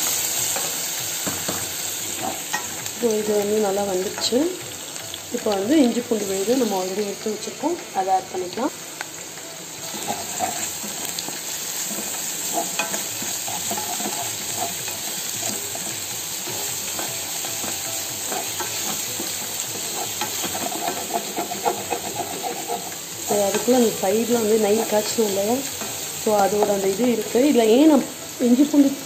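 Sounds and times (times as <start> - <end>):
onions sizzling in oil: 0.0 - 29.0
spatula scraping pot: 9.8 - 23.9.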